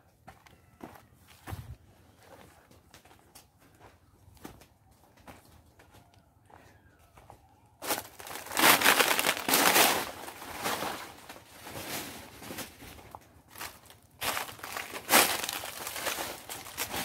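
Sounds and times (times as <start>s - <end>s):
footsteps crunching dry leaves: 7.8s - 17.0s.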